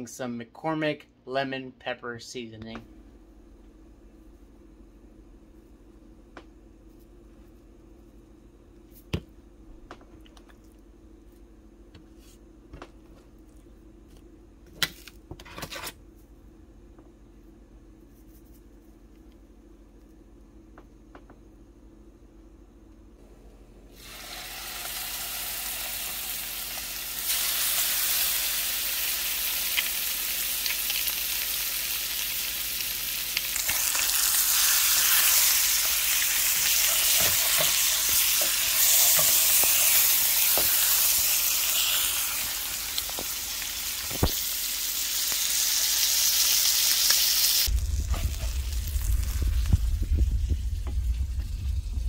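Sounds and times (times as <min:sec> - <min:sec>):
fish sizzling in hot fat: 0:24.0 - 0:52.0
low hum: 0:47.6 - 0:52.0.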